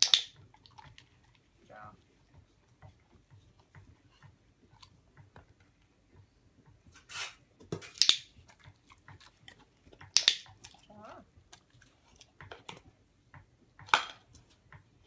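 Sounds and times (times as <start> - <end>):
dog chewing and licking: 0.1 - 6.9, 8.3 - 15.0
training clicker clicks: 10.0 - 10.6.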